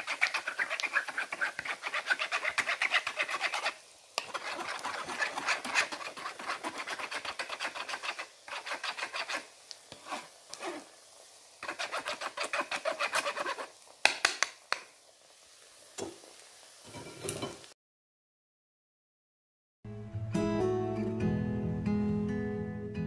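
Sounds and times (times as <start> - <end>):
spatula scraping wire mesh sieve: 0.0 - 10.9, 11.6 - 13.8
sharp taps and knocks: 14.0 - 14.9.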